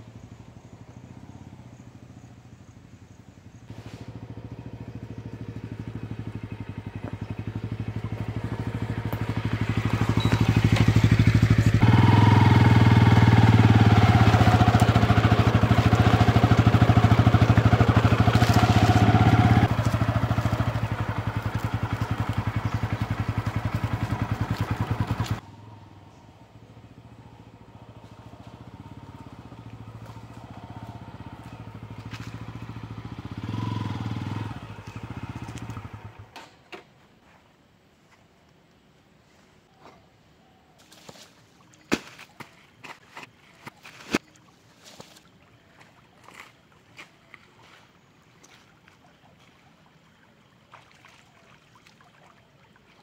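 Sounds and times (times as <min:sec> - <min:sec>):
motorcycle engine running: 0:00.0 - 0:36.3.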